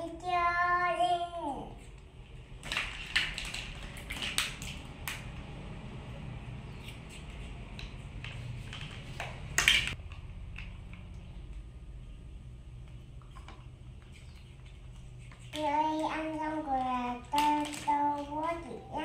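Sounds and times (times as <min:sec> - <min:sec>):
plastic toys clicking and knocking: 0:02.6 - 0:05.2, 0:07.7 - 0:11.1, 0:15.5 - 0:18.9.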